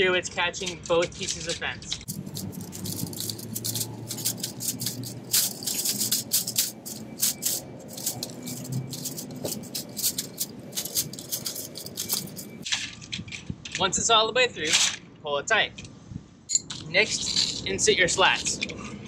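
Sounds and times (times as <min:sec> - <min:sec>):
chain link wire rattling and clinking: 0:00.8 - 0:13.1, 0:16.5 - 0:17.7.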